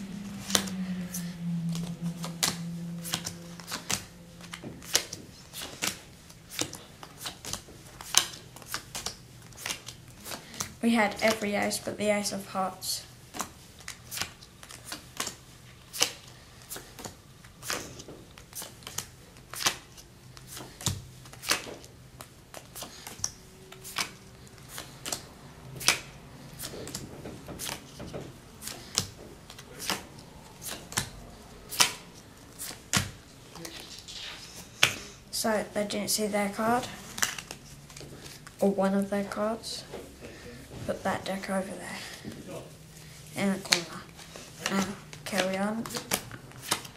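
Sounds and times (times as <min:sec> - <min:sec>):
playing cards dealt clicking: 0:02.2 - 0:11.4, 0:13.3 - 0:25.2, 0:25.8 - 0:35.1, 0:43.6 - 0:46.9.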